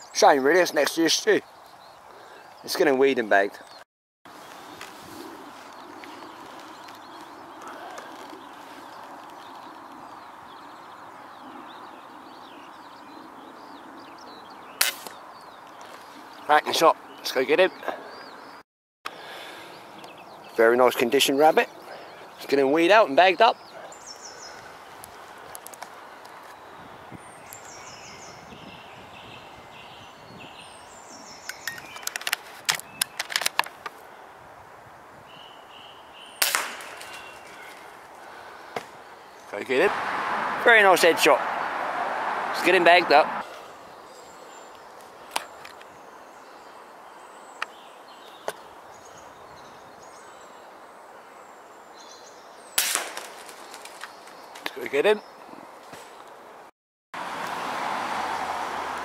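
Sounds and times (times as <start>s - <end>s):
small birds chirping: 0.0s - 34.3s, 35.2s - 39.9s, 42.6s - 56.4s
steady outdoor hiss: 0.0s - 59.0s
air rifle shot: 36.4s - 37.3s, 52.8s - 53.6s.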